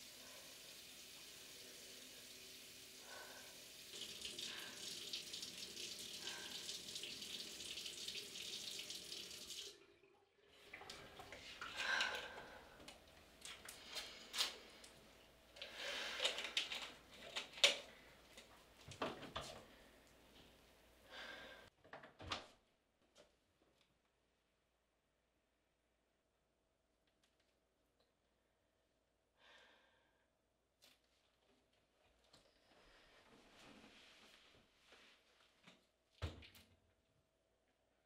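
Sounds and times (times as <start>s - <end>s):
sink tap running: 0.0s - 13.8s.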